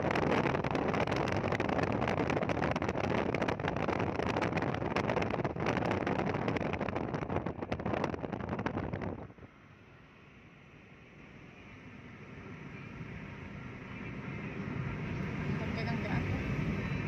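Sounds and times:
wind buffeting microphone: 0.0 - 9.5
car road noise: 0.0 - 17.0.

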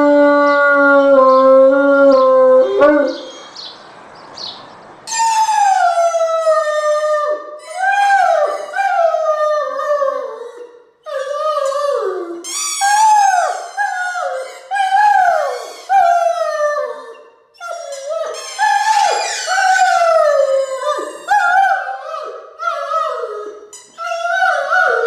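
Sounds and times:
dog howling: 0.0 - 3.4, 5.2 - 25.0.

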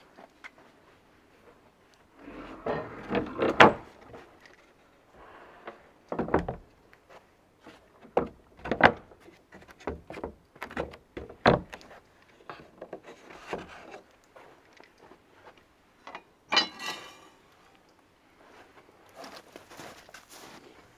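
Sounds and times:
wooden door knocks and clunks: 6.1 - 6.6, 8.2 - 9.1, 9.8 - 11.7.

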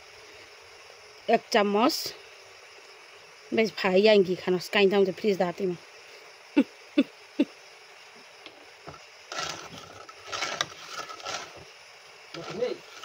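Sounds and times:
spatula scraping metal pan: 9.3 - 11.6.

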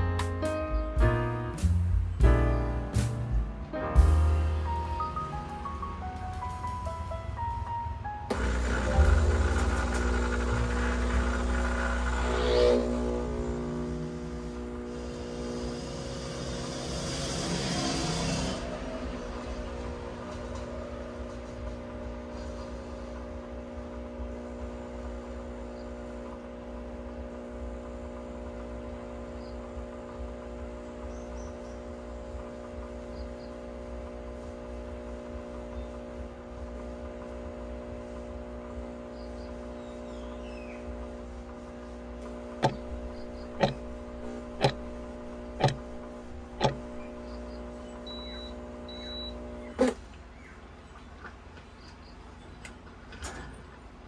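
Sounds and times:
espresso machine humming: 8.3 - 50.0
sharp clicks: 42.6 - 47.2.

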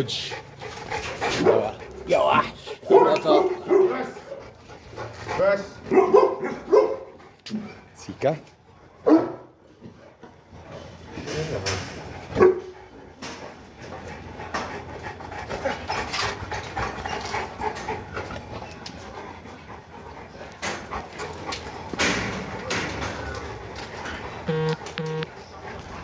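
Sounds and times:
dog panting: 0.0 - 7.8, 10.0 - 26.0
dog barking: 2.9 - 4.1, 5.9 - 7.1, 9.0 - 9.5, 12.4 - 12.7.

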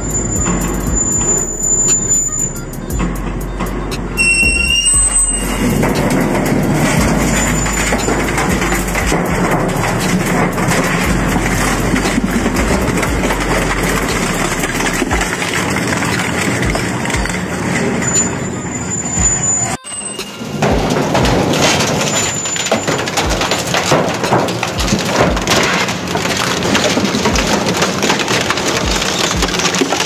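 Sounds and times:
low drone: 0.0 - 17.4
crushing machine running: 0.0 - 30.0
short cracks and crunches: 5.7 - 18.4, 20.8 - 30.0.

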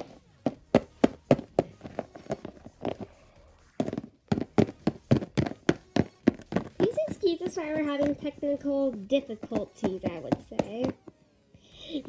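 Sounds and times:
plastic figurines tapping on tabletop: 9.3 - 11.1.

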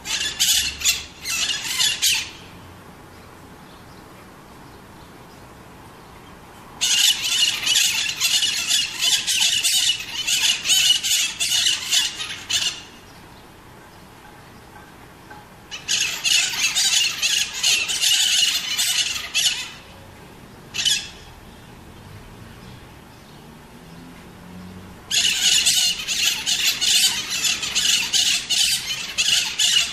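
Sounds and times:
parakeets screeching: 0.0 - 2.6, 6.8 - 13.0, 15.7 - 19.9, 20.7 - 21.3, 25.1 - 29.9.

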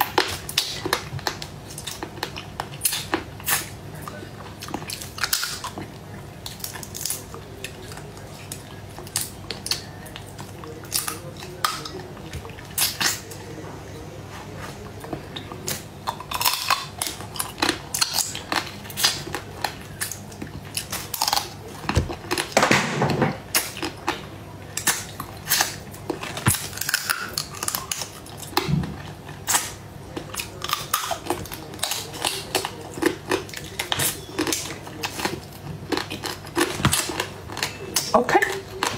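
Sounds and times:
chewing and lip smacks: 0.0 - 13.5.

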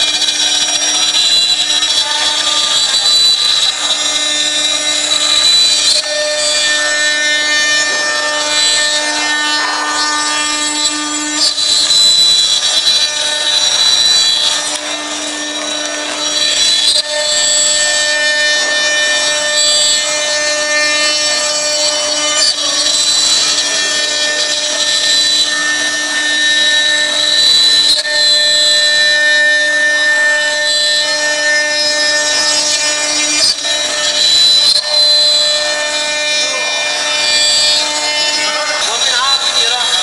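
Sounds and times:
router spindle whining: 0.0 - 40.0
wood being cut: 0.0 - 40.0.

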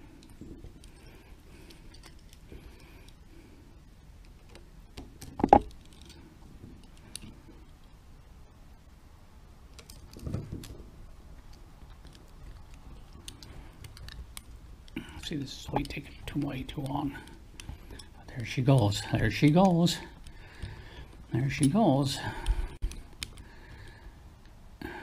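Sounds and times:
allen key clicking and scraping: 0.2 - 3.2, 5.2 - 7.9, 9.7 - 10.8, 11.4 - 23.5.

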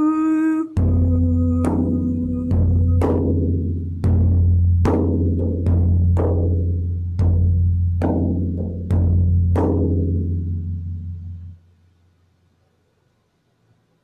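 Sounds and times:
frame drum booming: 0.8 - 11.6.

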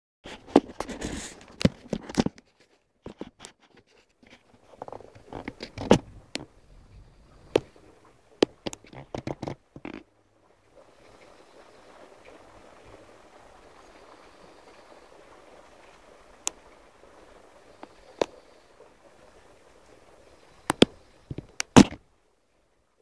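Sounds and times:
camera handling clicks and scrapes: 0.3 - 6.1.

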